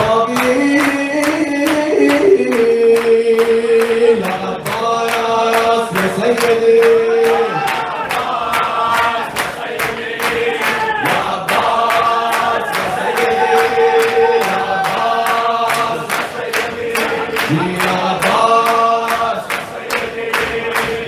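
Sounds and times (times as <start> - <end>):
man singing a chant: 0.0 - 7.8, 10.4 - 21.0
fast percussive beat: 0.7 - 6.2.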